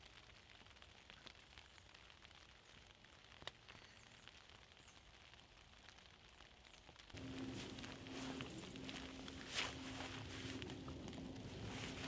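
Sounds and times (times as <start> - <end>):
drizzle pattering on a tarp: 0.0 - 12.0.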